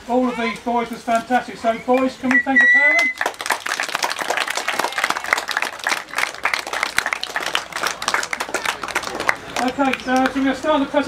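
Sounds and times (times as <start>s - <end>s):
crowd applauding: 2.0s - 10.6s.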